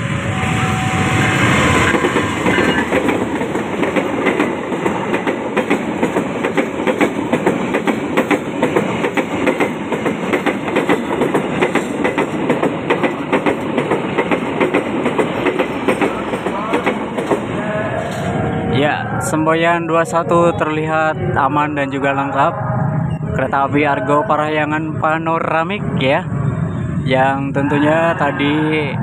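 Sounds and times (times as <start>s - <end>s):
train rumble and rush: 0.0s - 29.0s
train wheels clattering: 1.4s - 18.3s.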